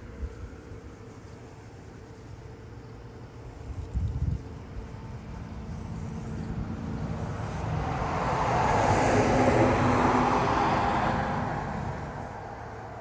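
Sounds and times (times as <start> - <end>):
vehicle driving past: 5.5 - 13.0.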